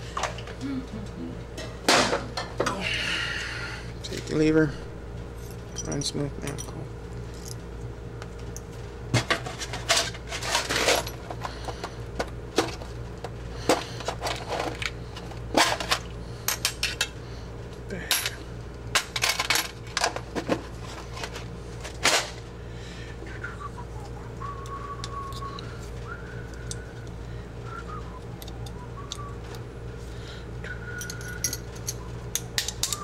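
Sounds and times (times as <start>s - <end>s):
steady low hum: 0.0s - 33.0s
metal tools clicking and clinking: 5.4s - 7.6s, 31.0s - 33.0s.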